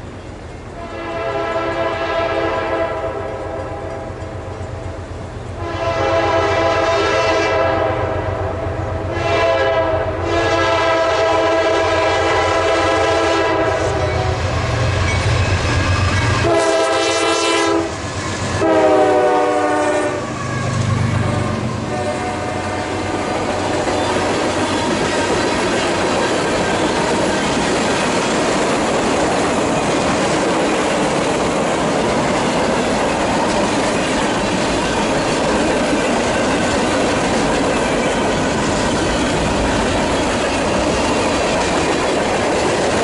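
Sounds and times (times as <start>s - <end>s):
locomotive air horn blasts: 0.8s - 4.0s, 5.6s - 14.4s, 16.4s - 23.4s
locomotive engine rumble: 17.8s - 43.0s.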